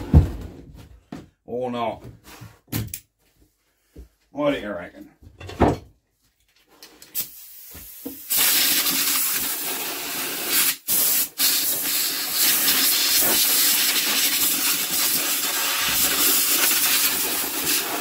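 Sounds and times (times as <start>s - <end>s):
compressed air blow gun hissing: 7.2s - 18.0s.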